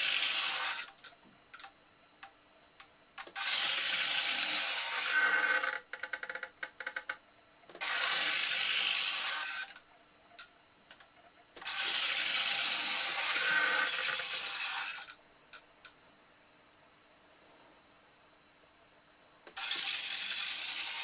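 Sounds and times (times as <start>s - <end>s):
electric point motor whirring: 0.0s - 1.0s, 3.2s - 5.8s, 7.7s - 9.8s, 11.6s - 15.2s, 19.5s - 21.0s.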